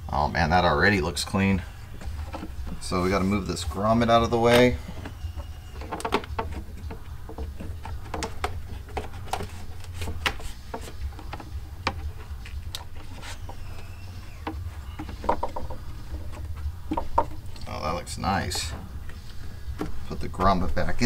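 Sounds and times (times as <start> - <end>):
steady low hum: 0.0 - 21.0
panel knocking and rubbing: 1.9 - 17.5
faint squeak: 13.0 - 15.2.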